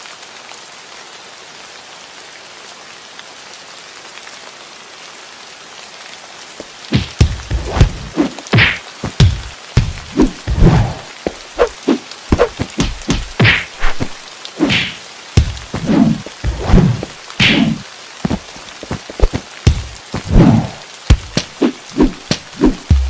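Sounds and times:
sharp hits and thuds: 6.9 - 11.7, 12.3 - 23.0
rushing whooshes: 10.0 - 15.0, 15.7 - 23.0.

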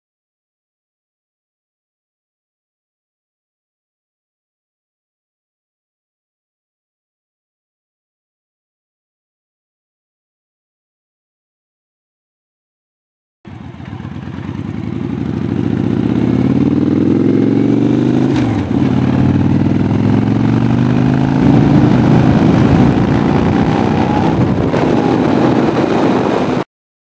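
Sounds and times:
motorcycle engine accelerating: 13.5 - 26.7.

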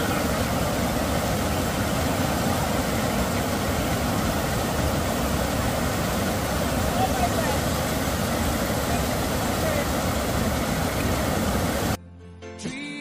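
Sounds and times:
rushing water: 0.0 - 12.0.

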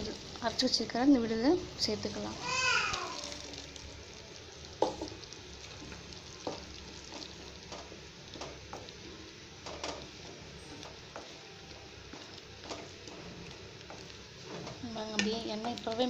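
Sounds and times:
sizzling simmer: 0.0 - 16.0
spoon knocking and scraping pan: 4.8 - 8.9, 12.1 - 15.9.

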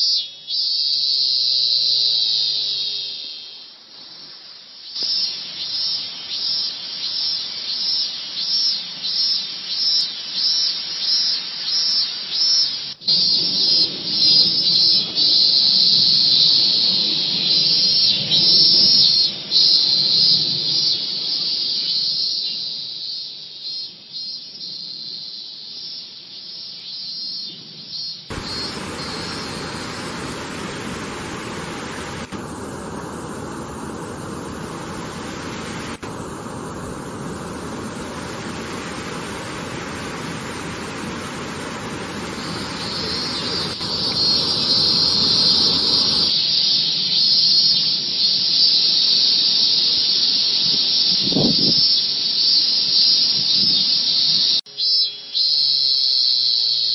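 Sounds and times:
cicada singing: 0.0 - 56.9
waterfall rushing: 28.3 - 46.3.

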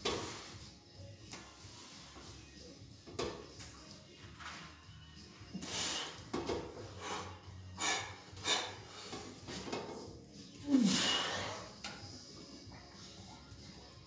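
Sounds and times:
hard forceful breathing: 5.6 - 9.5, 10.7 - 11.8.

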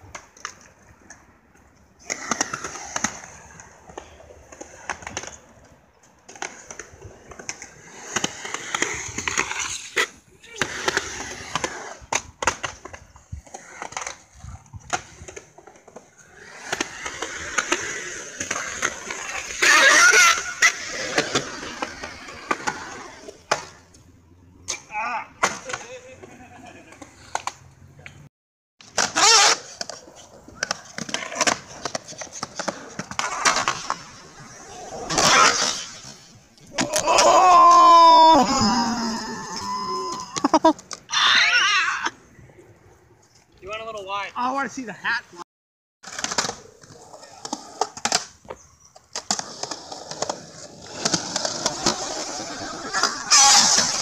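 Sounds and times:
skateboard wheels rolling on concrete: 0.0 - 45.4, 46.0 - 54.0
person yelling: 36.8 - 40.6.

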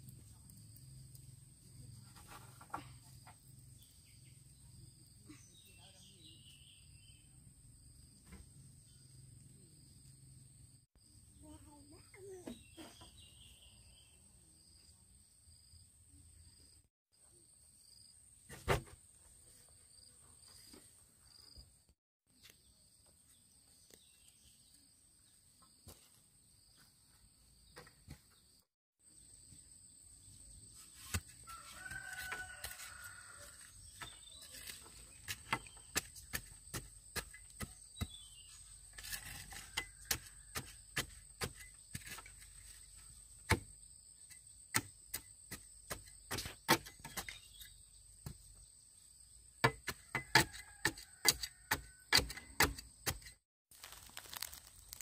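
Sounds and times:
rooster crowing: 31.4 - 33.7.

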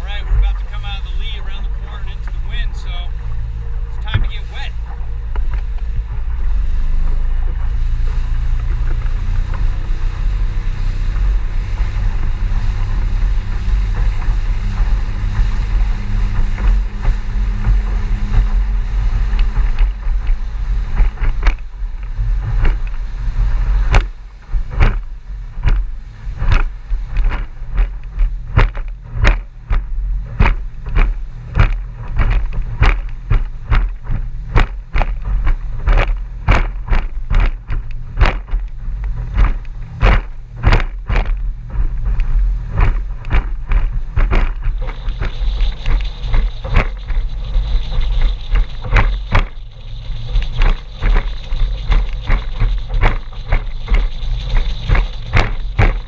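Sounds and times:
outboard motor drone: 0.0 - 56.0
boat hull slamming on waves: 0.2 - 56.0.

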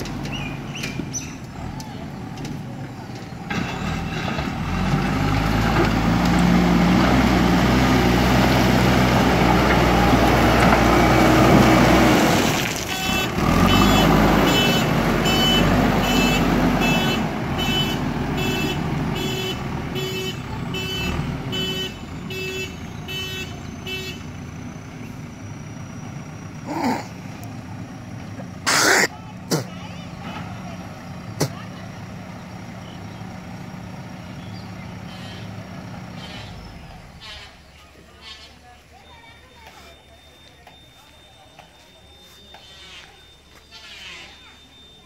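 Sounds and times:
reversing alarm beeps: 38.8 - 45.0.

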